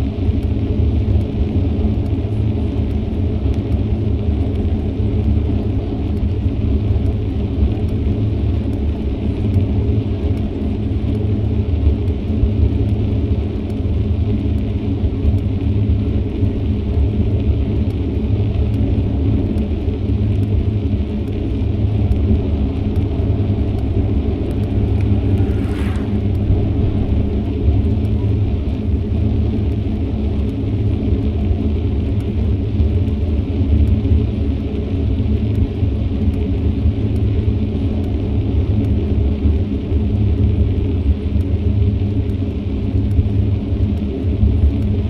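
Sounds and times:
bicycle tyre and road noise: 0.0s - 45.0s
wind rumble on microphone: 0.0s - 45.0s.

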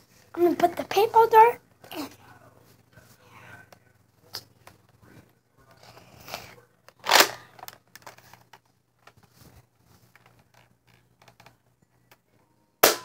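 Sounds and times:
toy dart blaster rustling: 7.0s - 8.6s.

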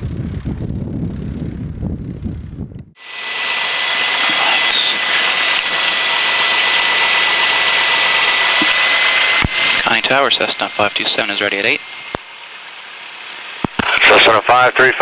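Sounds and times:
wind on microphone: 0.0s - 3.0s
airplane engine and propeller outside: 0.0s - 15.0s
airplane engine drone in cockpit: 0.0s - 15.0s.

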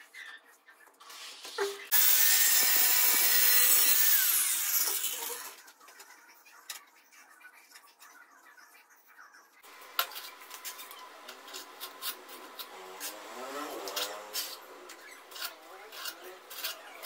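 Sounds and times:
electric power tool running: 1.9s - 5.4s.

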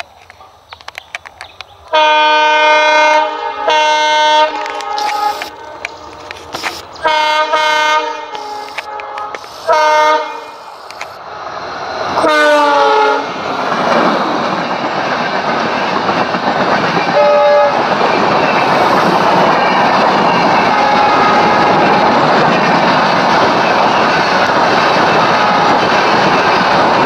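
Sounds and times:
locomotive horn blasts: 1.9s - 10.6s, 12.2s - 13.3s, 17.2s - 17.8s, 20.6s - 22.1s, 25.3s - 25.9s
train wheels clattering on rails: 11.9s - 27.0s.

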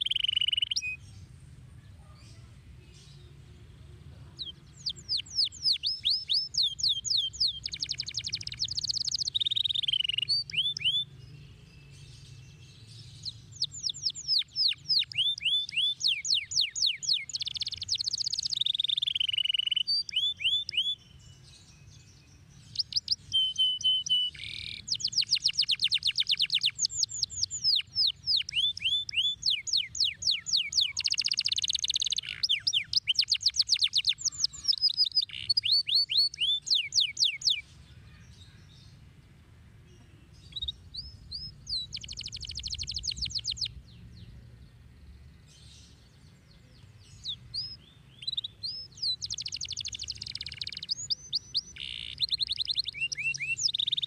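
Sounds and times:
canary trilling: 0.0s - 1.0s, 4.4s - 11.1s, 13.2s - 21.0s, 22.8s - 37.6s, 41.3s - 43.7s, 47.2s - 54.0s.

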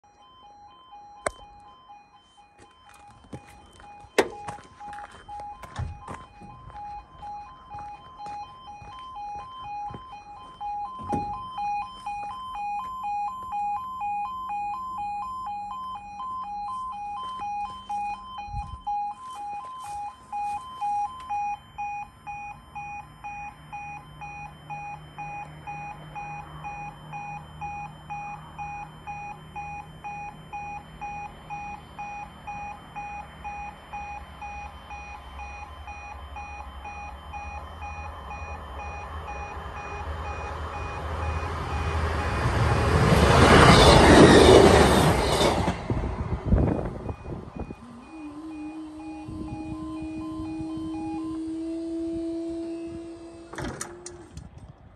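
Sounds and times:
level crossing two-tone alarm: 0.0s - 54.3s
barrier motor humming: 14.8s - 54.8s
approaching train rumble: 38.6s - 49.4s.

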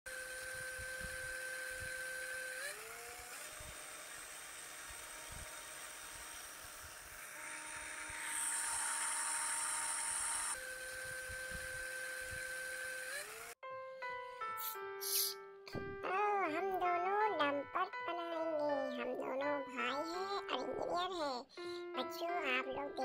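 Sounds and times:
cartoon bulldozer electronic hum: 0.1s - 13.6s.

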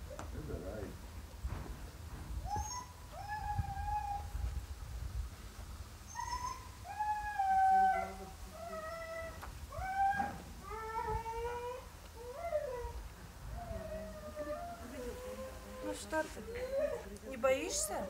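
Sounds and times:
huskies whining: 2.4s - 4.4s, 6.1s - 18.0s.

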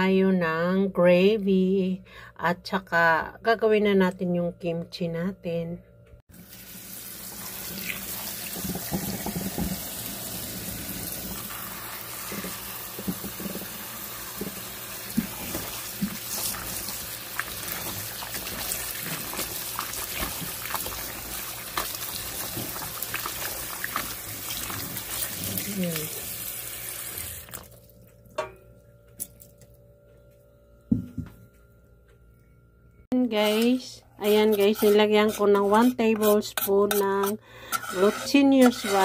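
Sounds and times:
water splashing: 15.1s - 26.4s.

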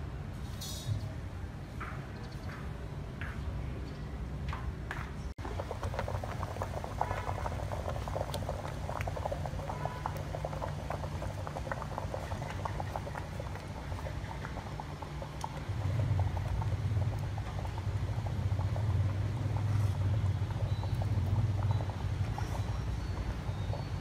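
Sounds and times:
water boiling with bubbling pops: 5.4s - 24.0s.

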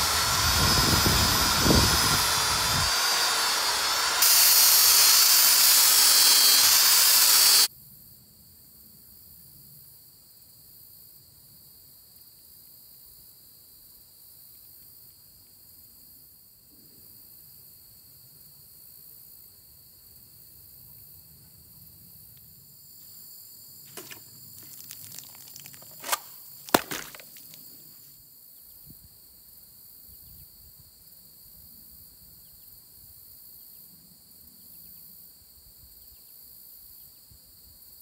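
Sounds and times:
insects droning in grass: 21.8s - 38.0s.

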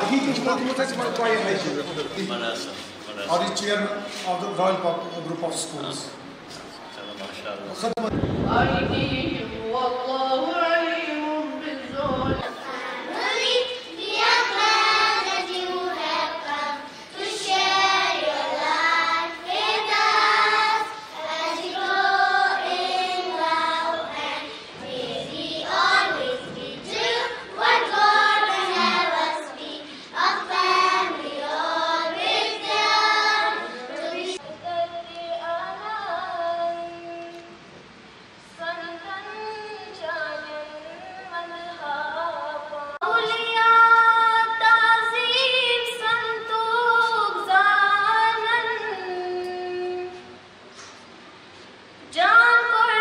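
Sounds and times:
girls singing into a microphone: 8.8s - 37.2s, 38.5s - 50.4s.

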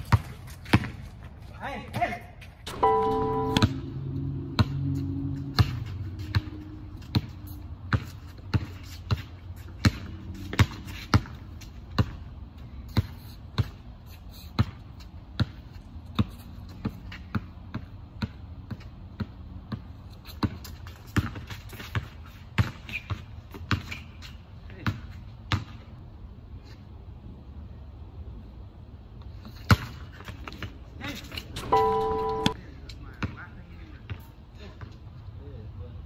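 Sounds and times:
basketball bouncing on hard court: 5.5s - 12.3s, 14.6s - 22.8s.

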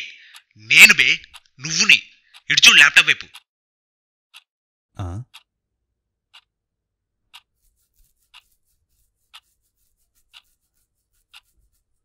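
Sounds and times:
clock ticking: 0.0s - 3.5s, 4.3s - 5.6s, 6.3s - 6.6s, 7.3s - 7.6s, 8.2s - 8.6s, 9.3s - 9.6s, 10.2s - 11.8s.

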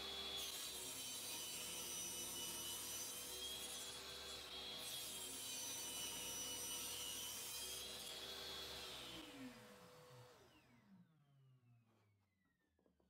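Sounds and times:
table saw cutting plywood: 0.0s - 10.8s.

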